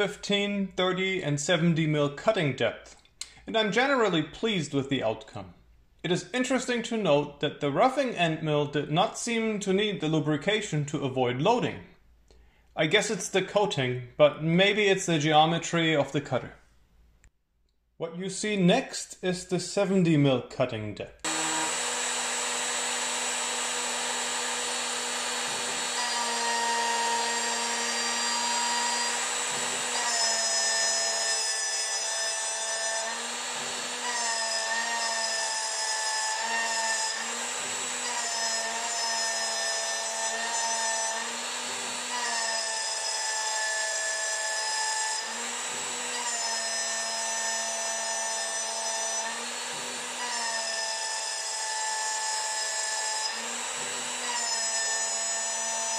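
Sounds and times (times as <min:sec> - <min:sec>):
milling machine whine: 0:21.3 - 0:30.4.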